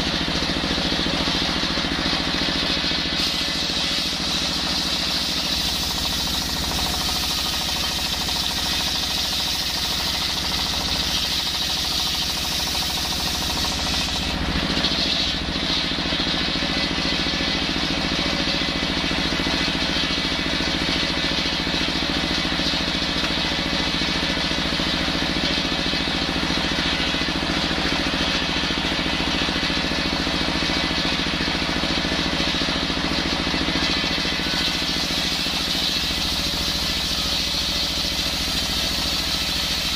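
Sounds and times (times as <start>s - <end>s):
circular saw cutting log: 0.0s - 17.5s, 33.5s - 39.9s
diesel engine running: 0.0s - 39.9s.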